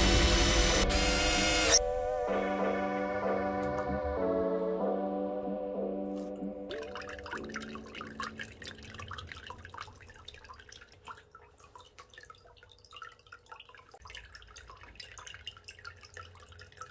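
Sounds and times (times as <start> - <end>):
water trickling and dripping: 6.2 - 16.9.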